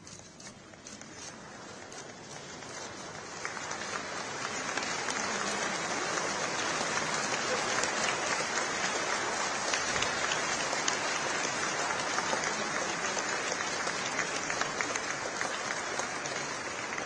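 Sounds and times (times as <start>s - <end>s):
audience applauding: 1.4s - 17.0s.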